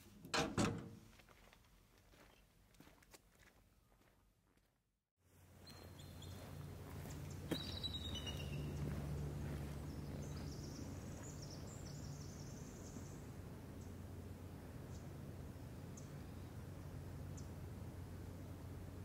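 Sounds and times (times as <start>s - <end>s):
steady low hum: 5.3s - 19.0s
small birds chirping: 5.6s - 14.0s
thin twittering bird song: 5.6s - 14.0s, 15.9s - 16.6s.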